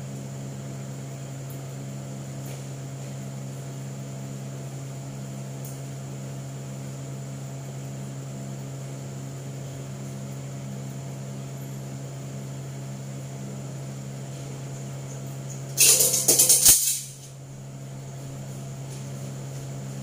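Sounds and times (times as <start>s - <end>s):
metal utensil clattering on floor: 15.8s - 17.2s.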